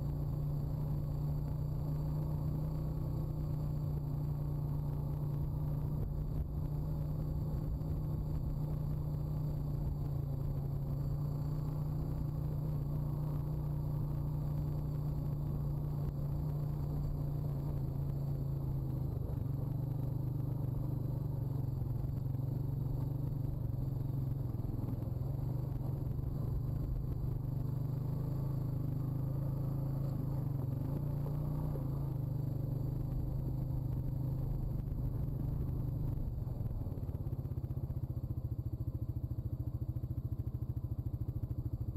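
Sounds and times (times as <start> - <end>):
quad bike engine running: 0.0 - 41.9.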